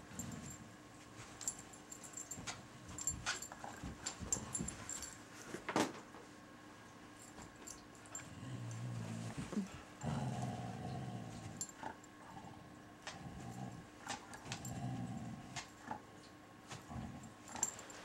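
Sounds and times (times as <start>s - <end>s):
dogs growling: 8.2s - 16.1s, 16.7s - 17.8s.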